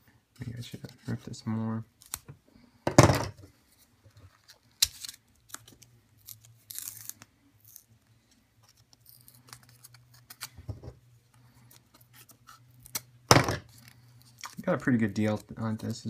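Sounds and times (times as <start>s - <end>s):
card being torn open: 4.4s - 7.9s.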